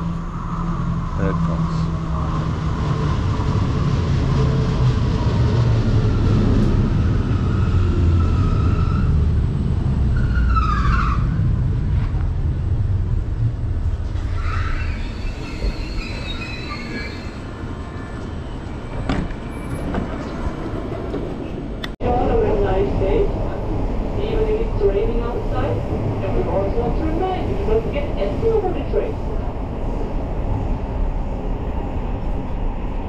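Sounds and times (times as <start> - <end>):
high brake squeals: 14.3 - 18.2.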